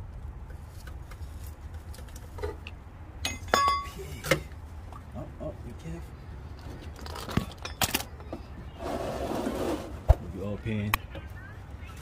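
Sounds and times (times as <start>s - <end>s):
metallic knocks and clinks: 3.2s - 4.4s, 7.0s - 8.1s.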